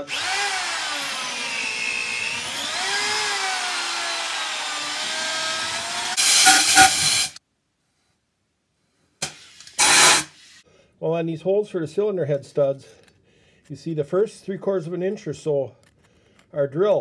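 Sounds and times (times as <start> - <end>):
power drill whining: 0.0 - 7.4, 9.2 - 10.3.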